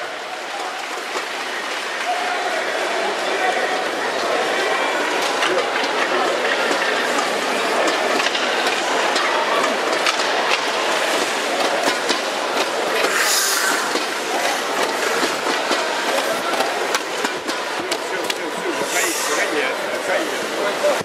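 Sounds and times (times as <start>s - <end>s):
crowd and rink noise: 0.0s - 21.0s
hockey sticks and skates clattering: 5.2s - 19.0s
brief hiss: 13.1s - 14.0s.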